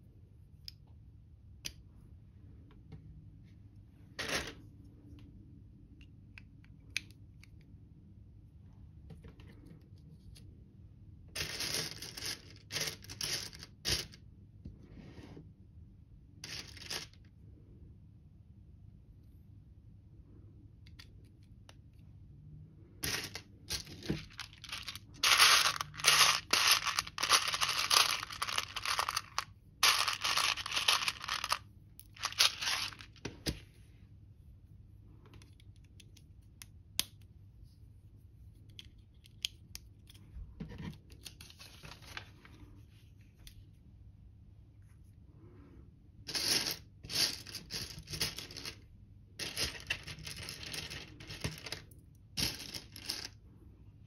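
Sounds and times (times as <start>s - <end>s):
plastic bricks clattering: 23.0s - 33.2s, 49.4s - 53.4s.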